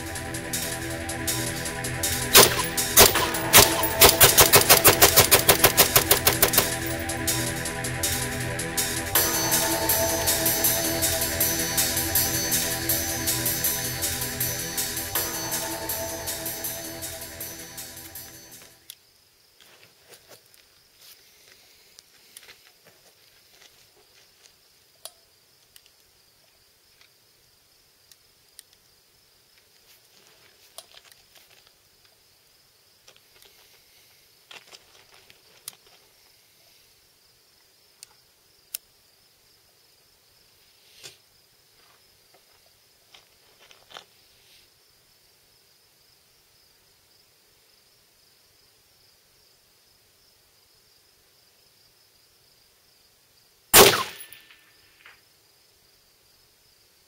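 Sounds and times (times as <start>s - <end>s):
rifle shot: 2.3s - 6.9s, 53.8s - 54.6s
faint scattered clicks: 28.1s - 28.8s.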